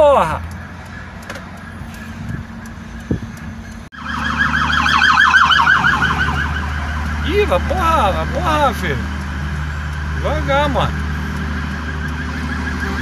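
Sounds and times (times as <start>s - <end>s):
car engine and road hum: 0.0s - 13.0s
warbling electronic siren: 3.9s - 13.0s.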